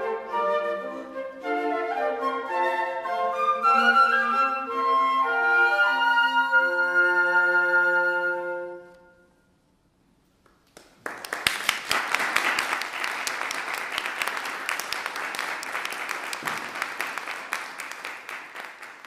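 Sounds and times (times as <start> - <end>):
audience applause: 10.7 - 19.0.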